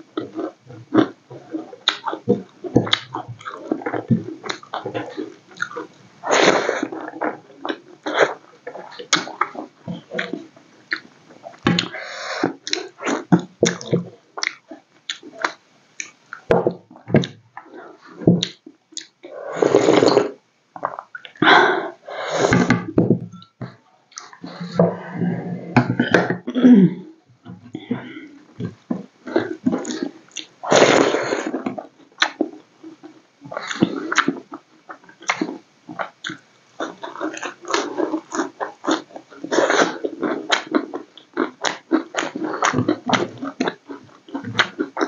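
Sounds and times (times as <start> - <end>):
wet chewing and lip-smacking: 0.2 - 6.0, 31.5 - 45.0.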